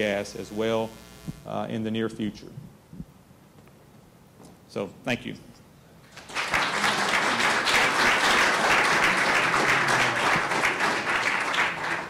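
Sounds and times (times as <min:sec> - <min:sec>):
audience applause: 0:06.1 - 0:12.0.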